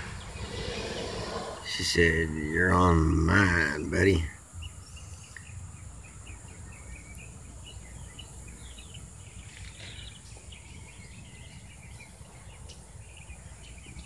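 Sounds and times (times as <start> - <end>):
low rumble: 0.0 - 1.7
insect drone: 0.0 - 12.1
small birds chirping: 0.0 - 14.0.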